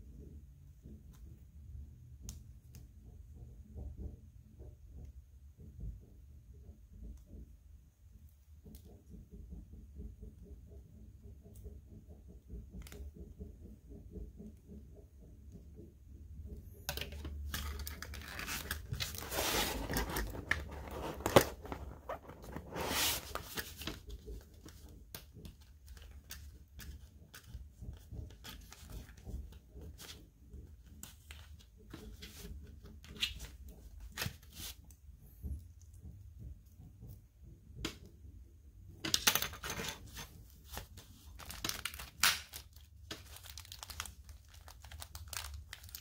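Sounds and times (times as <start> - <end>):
plastic parts clicking: 16.8 - 22.6
packaging rustling and tearing: 17.5 - 24.0, 40.0 - 46.0.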